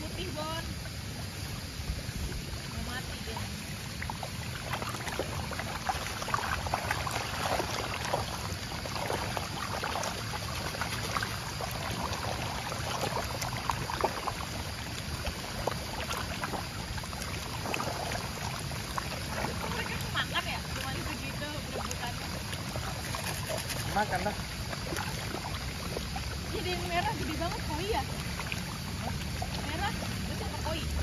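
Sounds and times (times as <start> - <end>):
fish splashing in water: 0.0 - 31.0.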